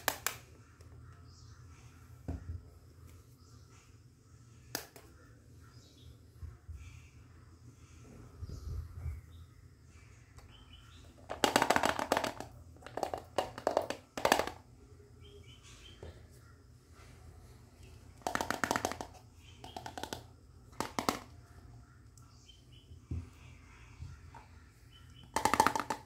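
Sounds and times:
plastic toys clattering: 0:11.1 - 0:14.7, 0:18.2 - 0:21.4, 0:25.2 - 0:26.0.

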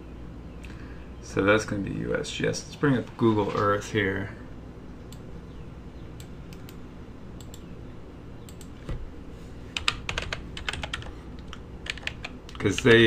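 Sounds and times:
low steady hum: 0:00.0 - 0:13.0
typing on computer keyboard: 0:09.8 - 0:12.9.

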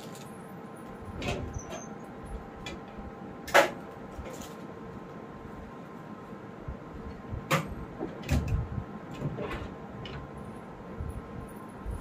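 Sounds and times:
handling clicks and rustles: 0:00.0 - 0:05.1.

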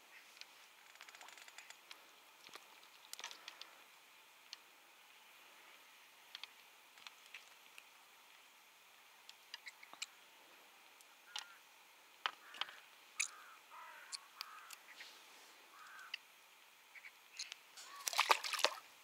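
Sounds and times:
short bird calls: 0:12.4 - 0:16.2, 0:17.8 - 0:18.2.

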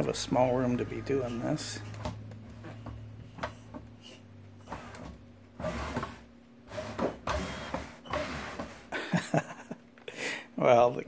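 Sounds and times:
electric motors whining: 0:00.0 - 0:08.7.

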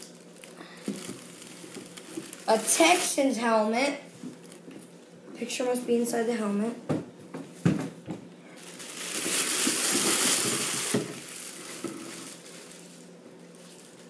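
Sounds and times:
plastic bag crinkling: 0:00.0 - 0:03.6, 0:04.2 - 0:04.9, 0:08.5 - 0:14.0.

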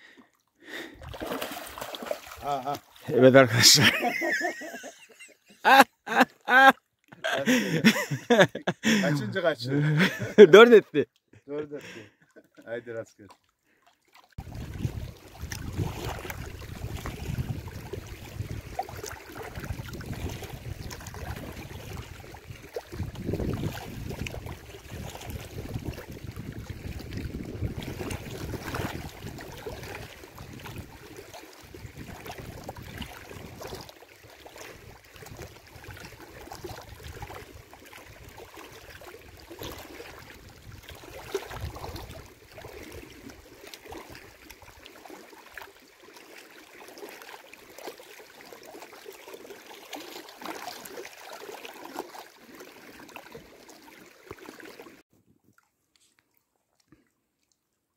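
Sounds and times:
small waves lapping on rocks: 0:00.8 - 0:04.8, 0:13.2 - 0:55.0
wind buffeting microphone: 0:14.4 - 0:18.8, 0:23.0 - 0:29.5.

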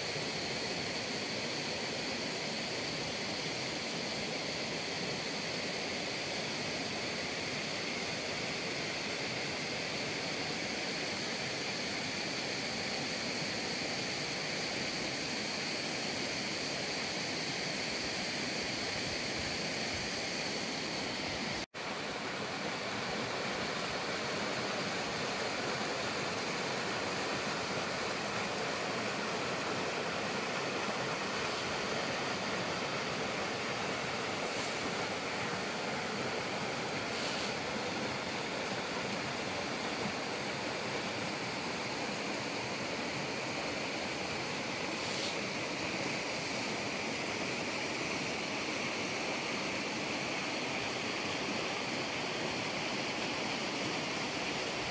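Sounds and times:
stream rushing over rocks: 0:00.0 - 0:54.9.

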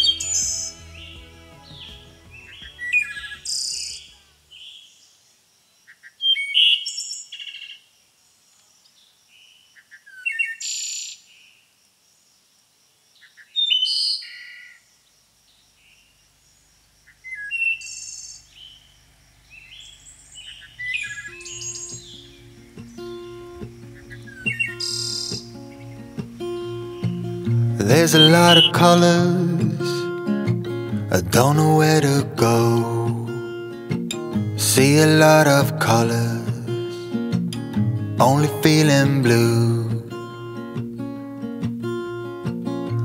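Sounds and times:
background music: 0:00.0 - 0:04.6, 0:21.2 - 0:43.0
songbird singing: 0:00.0 - 0:43.0.

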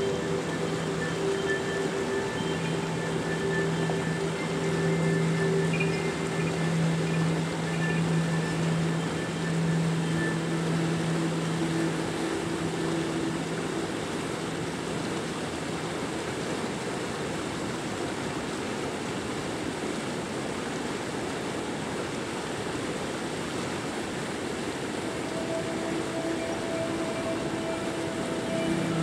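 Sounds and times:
ambient synth music: 0:00.0 - 0:16.0, 0:24.8 - 0:29.0
river water rushing over rocks: 0:00.0 - 0:29.0.

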